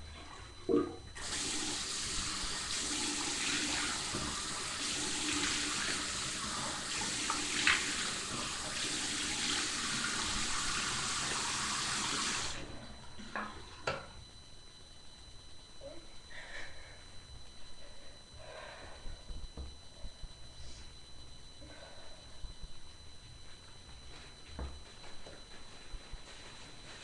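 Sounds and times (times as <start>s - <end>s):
sink tap water running: 1.2s - 12.7s.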